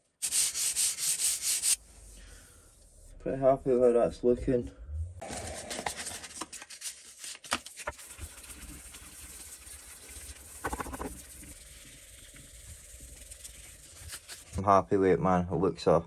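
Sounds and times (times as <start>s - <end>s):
sandpaper scratching on steel: 0.2s - 2.2s, 8.0s - 14.6s.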